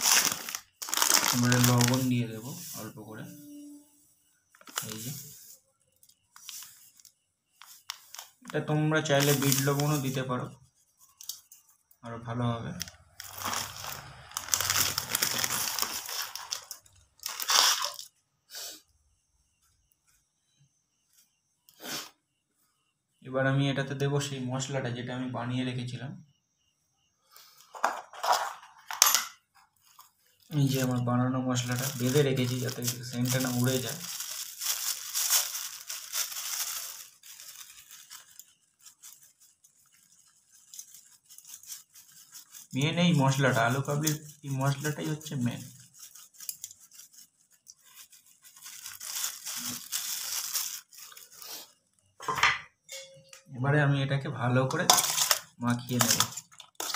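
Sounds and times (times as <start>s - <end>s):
plastic packet crinkling: 0.0s - 3.6s, 4.5s - 11.6s, 12.7s - 18.1s, 29.8s - 51.7s, 54.7s - 56.9s
faint rustles of sprinkled spice: 0.0s - 17.0s, 29.7s - 52.1s.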